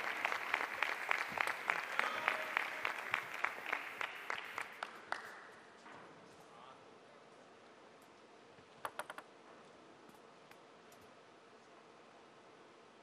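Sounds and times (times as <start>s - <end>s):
crowd applauding: 0.0s - 5.6s
rhythmic clapping: 0.0s - 5.6s.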